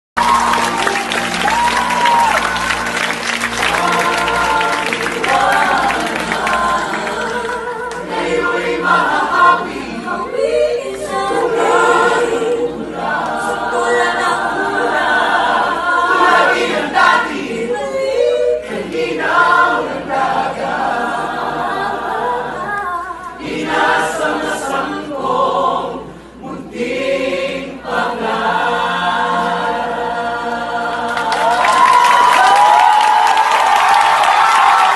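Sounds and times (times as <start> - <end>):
audience cheering and shouting: 0.2 - 4.6, 31.4 - 34.9
cast singing in chorus: 1.4 - 32.4.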